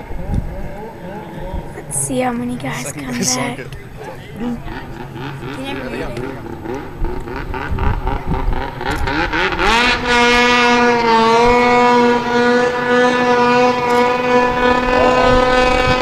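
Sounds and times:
snowmobile engine revving: 4.4 - 16.0.

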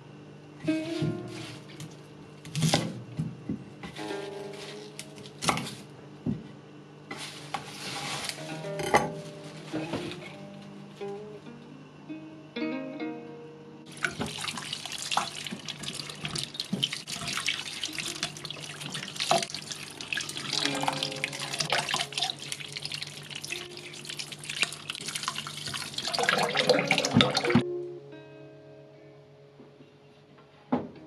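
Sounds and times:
hands rubbing and rinsing vegetable: 7.1 - 8.5, 13.9 - 27.6
tap water splashing into a bowl: 13.9 - 27.6.

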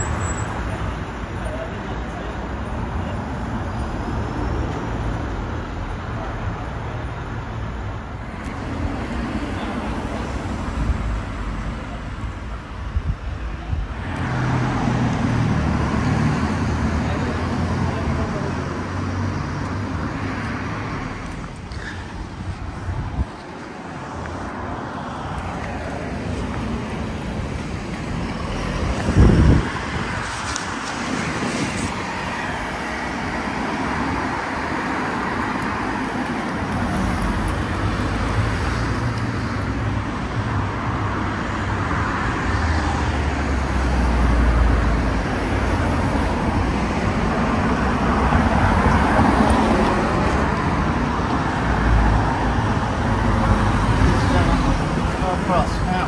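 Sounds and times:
deep rumble of passing vehicles: 0.0 - 56.0
cars driving past: 13.9 - 56.0.

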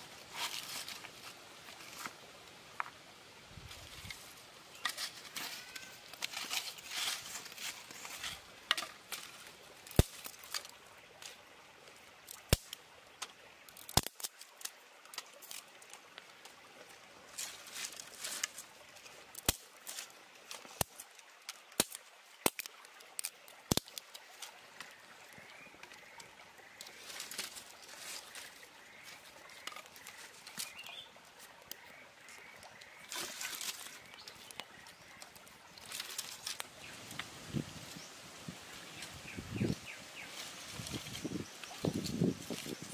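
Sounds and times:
dry kindling rustling: 3.6 - 10.7
twigs snapping: 4.8 - 11.3, 12.3 - 16.2, 19.4 - 26.1, 31.6 - 38.0.

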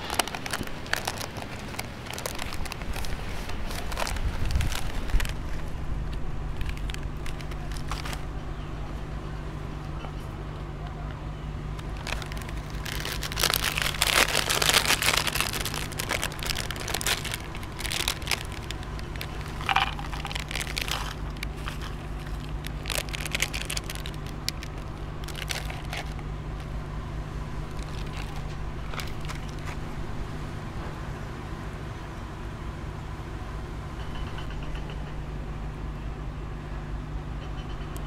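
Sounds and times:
foil snack bag crinkling: 0.0 - 8.3, 11.7 - 26.8, 27.5 - 29.9
steady low hum: 0.0 - 34.0
wafer rolls rattling into glass bowl: 12.1 - 24.0.

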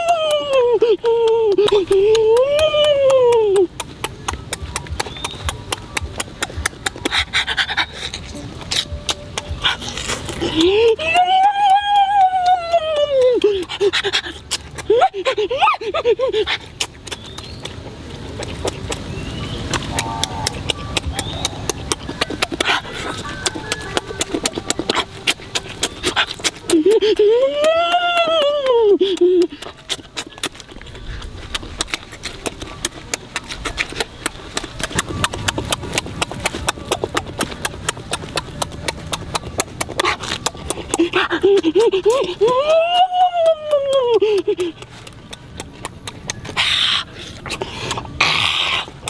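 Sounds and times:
wet smacking and chewing: 0.0 - 49.0.

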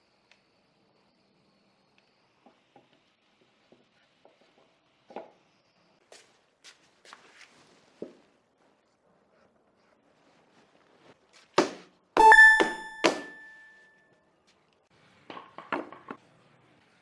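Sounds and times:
loud ringing ding: 12.2 - 13.9.

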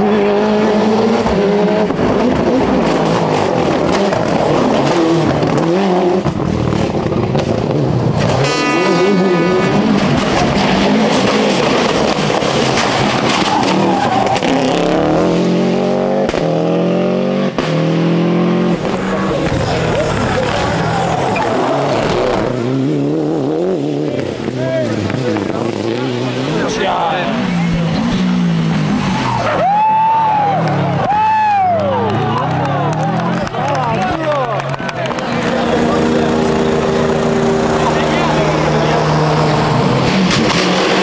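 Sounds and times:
rally car engines revving: 0.0 - 41.0
high tyre squeal: 12.5 - 14.9, 18.8 - 22.6.

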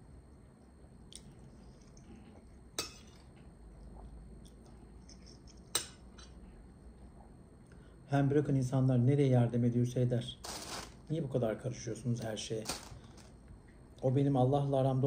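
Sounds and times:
soft chewing: 0.2 - 7.8.

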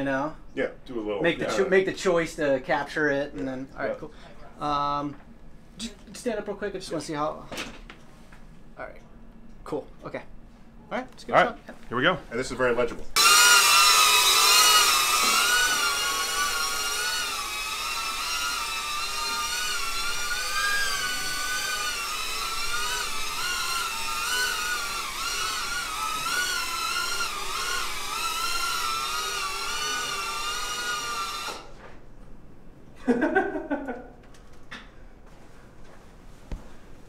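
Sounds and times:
quadcopter motors whining: 13.2 - 31.7.

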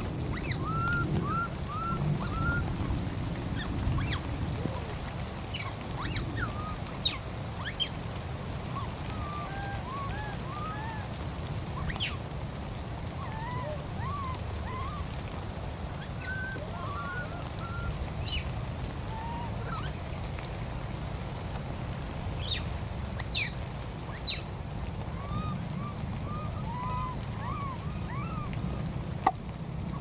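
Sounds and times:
squeaky animal calls: 26.3 - 28.5.

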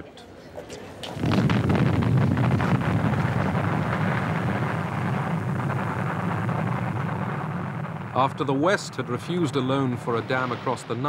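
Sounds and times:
explosive rock blast rumble: 1.1 - 11.0.

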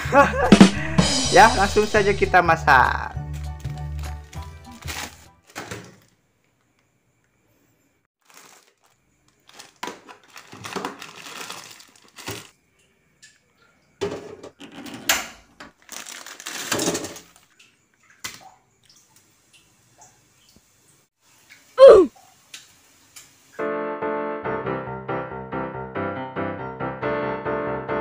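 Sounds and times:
plastic packet crinkling and tearing: 3.6 - 6.1, 8.2 - 12.5, 15.7 - 17.4.

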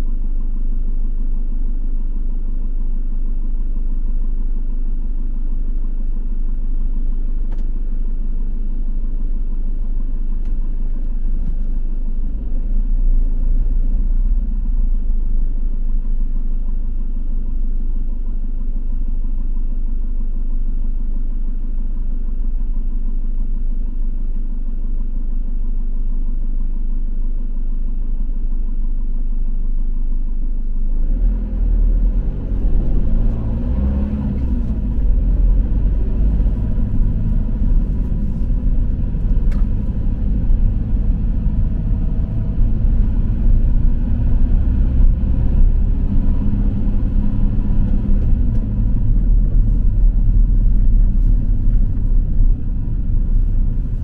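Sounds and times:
vehicle engine and tyres rumbling: 0.0 - 24.6, 25.7 - 54.0.

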